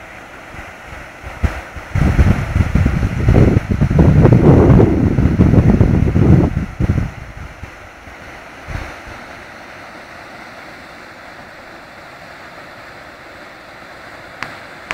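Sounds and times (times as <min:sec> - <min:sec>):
wind buffeting microphone: 0:01.2 - 0:09.2.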